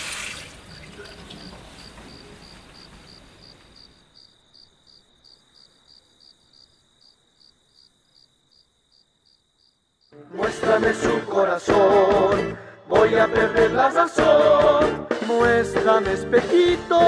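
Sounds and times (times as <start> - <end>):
water running at a sink: 0.0 - 1.5
cricket chirping: 0.4 - 10.2
band music with singing: 10.2 - 17.0.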